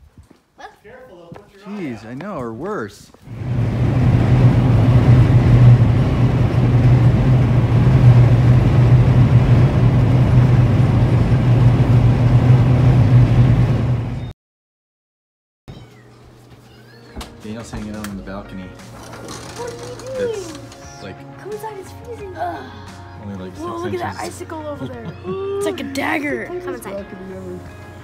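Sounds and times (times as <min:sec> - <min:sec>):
car engine and road noise: 0:03.3 - 0:14.2.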